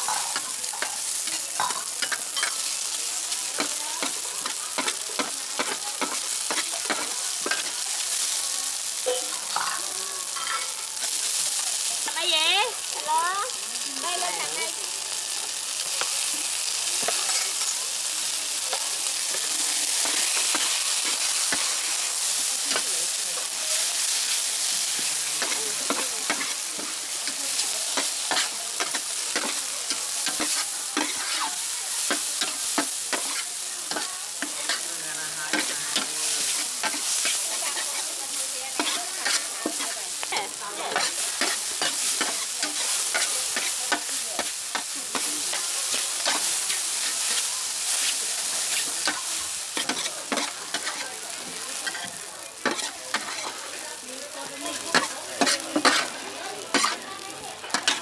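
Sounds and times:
metal spatula scraping a wok: 0.0 - 2.8, 24.2 - 53.6, 54.7 - 57.0, 57.6 - 58.0
noodles sizzling in a wok: 0.0 - 58.0.

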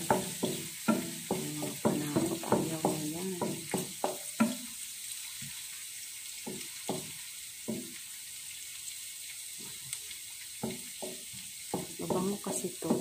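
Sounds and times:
pork and garlic sizzling in oil: 0.0 - 13.0.

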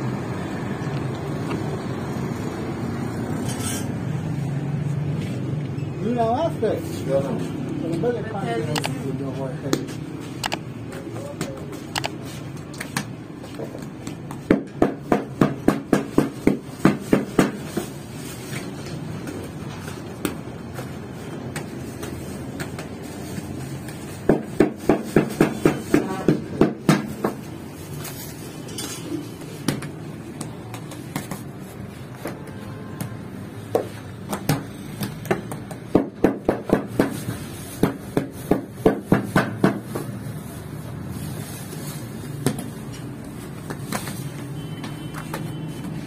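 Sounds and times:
hands patting bread dough: 21.5 - 27.5, 32.2 - 40.2.

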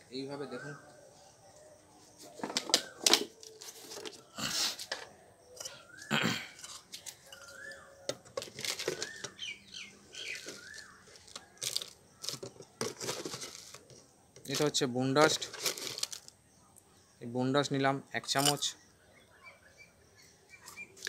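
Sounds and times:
metal spoon scraping plastic jar: 6.6 - 9.5, 10.1 - 16.3, 18.3 - 18.7
rustling handling noise: 6.8 - 9.5, 10.1 - 16.4.

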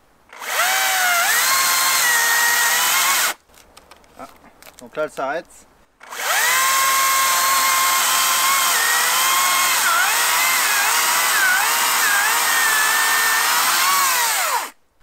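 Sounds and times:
electric chainsaw cutting log: 0.3 - 3.4, 6.0 - 14.8.

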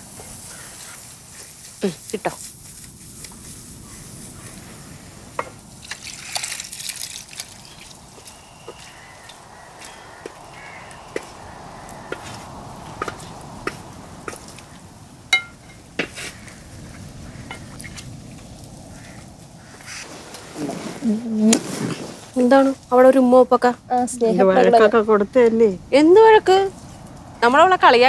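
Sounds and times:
thick curry bubbling and sloshing: 5.4 - 10.3.

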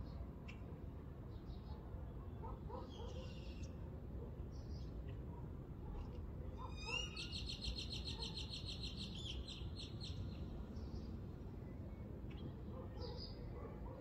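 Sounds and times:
songbird singing with trill: 6.7 - 11.1.

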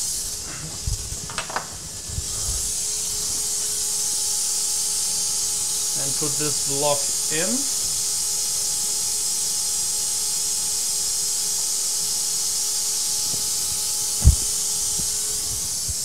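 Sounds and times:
faint hum tones: 0.0 - 10.0
steady hiss: 0.0 - 16.0.

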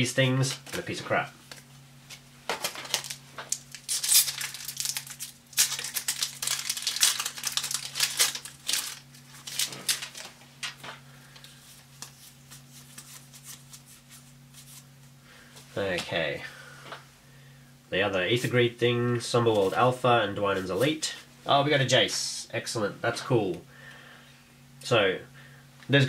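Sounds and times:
cards rustling and clicking: 1.5 - 14.8
foil wrapper crinkling and tearing: 2.6 - 10.8.

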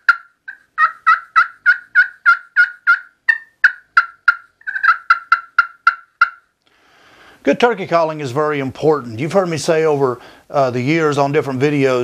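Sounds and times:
turkey call hen yelps: 0.0 - 6.5.

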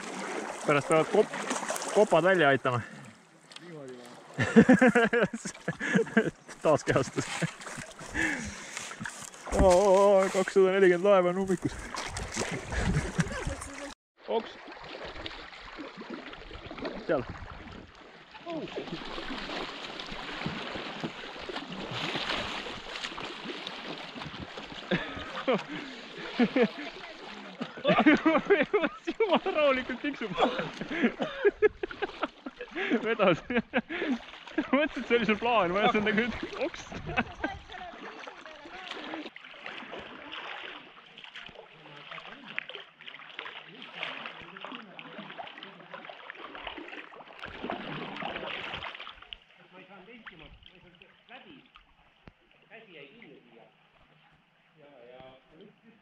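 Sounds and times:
river water rushing and splashing: 0.0 - 4.4, 5.4 - 33.2
kayak paddle strokes: 0.0 - 49.5.

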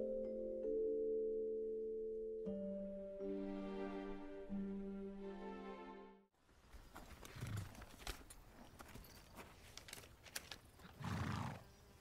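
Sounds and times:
horse hooves clopping: 6.7 - 11.4.

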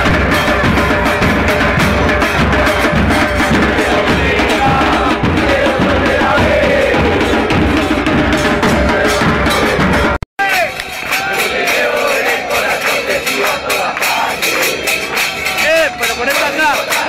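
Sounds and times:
bass drums beating: 0.0 - 10.2
crowd chanting: 0.0 - 17.0.

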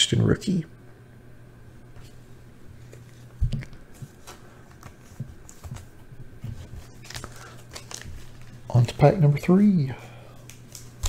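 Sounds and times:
steady low hum: 0.0 - 11.0
cards tapping and rustling: 2.9 - 8.5.

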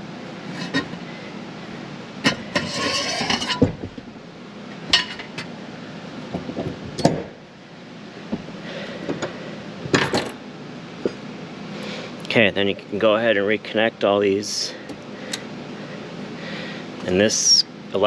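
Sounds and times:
metal tools clinking and knocking: 2.3 - 3.7
scraping rattle: 2.3 - 3.8.

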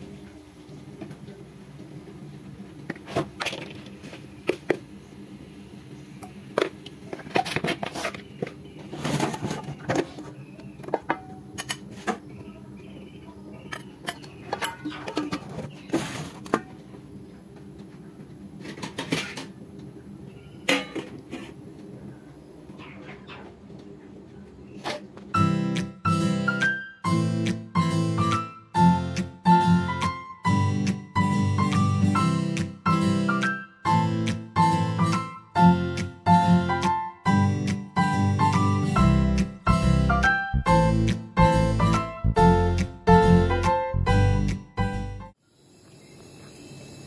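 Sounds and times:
pots and utensils clinking: 10.8 - 12.2, 13.7 - 16.7, 20.6 - 21.6.

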